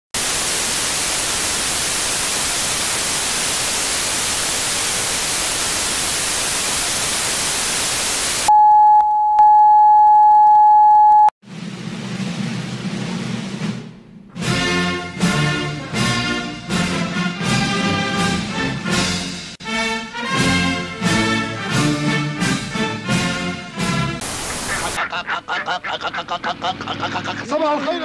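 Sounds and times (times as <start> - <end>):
television static hissing: 0.2 - 8.5, 24.2 - 28.0.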